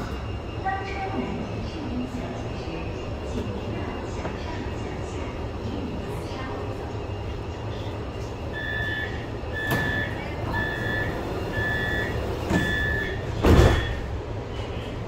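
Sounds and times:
train low hum: 0.0s - 15.0s
door warning beeps: 8.5s - 14.1s
train doors thudding shut: 9.6s - 10.8s, 11.6s - 14.1s.

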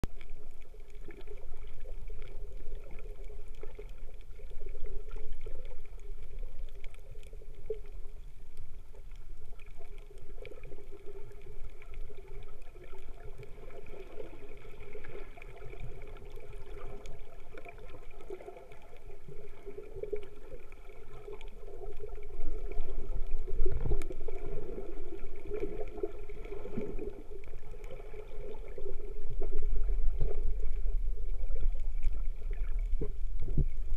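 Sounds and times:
deep underwater rumble: 0.0s - 33.9s
muffled underwater sloshing: 0.0s - 33.9s.

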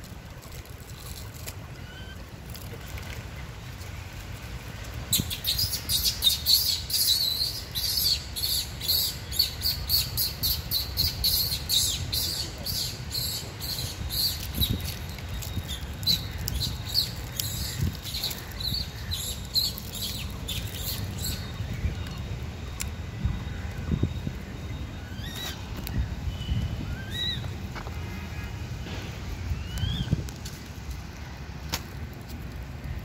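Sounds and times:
small birds chirping: 5.1s - 27.6s.

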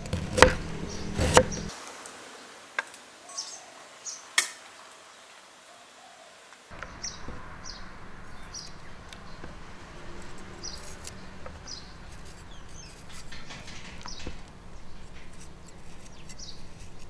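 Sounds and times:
small bird chirping: 6.7s - 17.0s.

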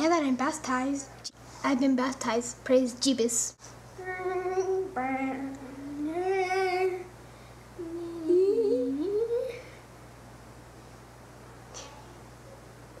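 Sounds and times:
girls humming: 4.0s - 7.2s, 7.8s - 9.8s.

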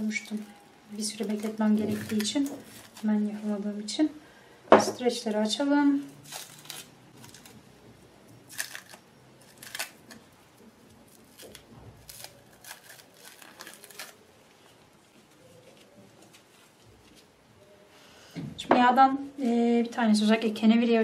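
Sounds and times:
cling film crinkling: 0.0s - 3.5s, 6.2s - 7.8s, 8.4s - 17.3s.

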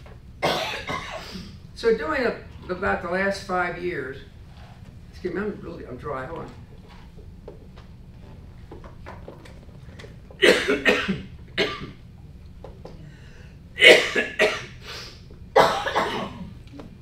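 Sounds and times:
man coughing: 0.4s - 1.5s, 10.4s - 12.0s, 13.8s - 14.8s, 15.6s - 16.6s.

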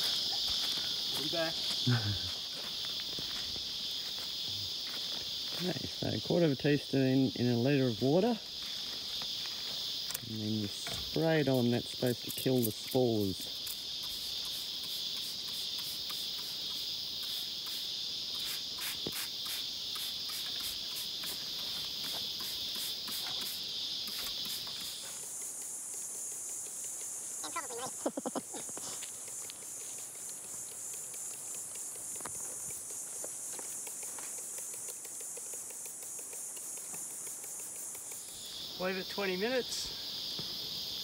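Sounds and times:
insect chorus drone: 0.0s - 41.0s.

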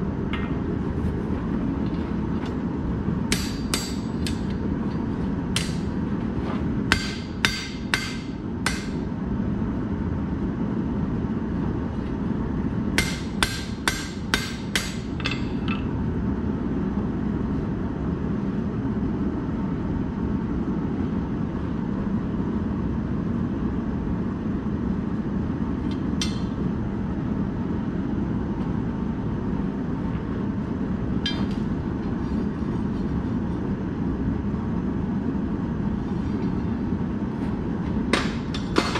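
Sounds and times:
hammer strikes on steel: 3.3s - 4.5s, 5.6s - 5.9s, 6.9s - 9.0s, 13.0s - 15.5s, 26.2s - 26.6s, 38.1s - 38.9s.

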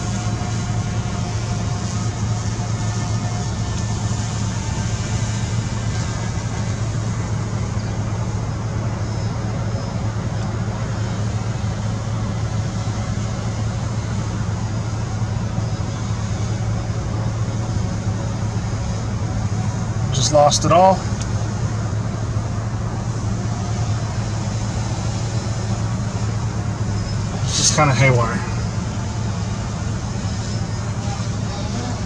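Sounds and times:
constant wash of noise: 0.0s - 32.0s
low mechanical hum: 0.0s - 32.0s.

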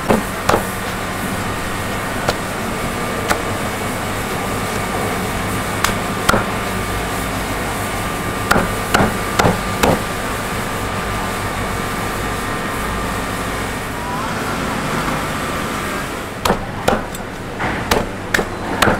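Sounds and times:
cleaver chopping on wooden board: 0.1s - 0.8s, 5.8s - 6.5s, 8.5s - 10.0s, 16.4s - 18.9s.

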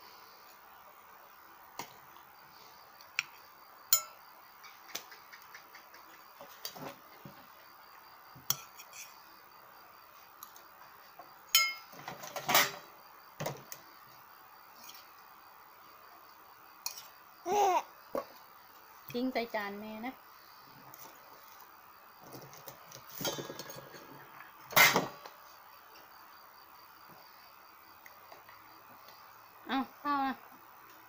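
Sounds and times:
metal spoon clinking on metal bowls: 3.9s - 4.2s, 11.5s - 11.9s.

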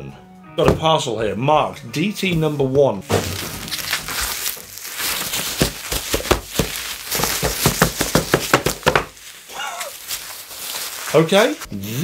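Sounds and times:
bubble wrap crackling: 3.0s - 12.0s.

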